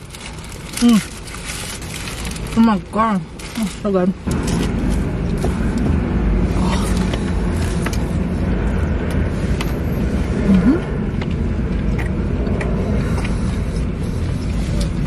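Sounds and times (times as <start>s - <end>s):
food packaging rustling: 0.0s - 4.7s
car cabin rumble: 0.0s - 15.0s.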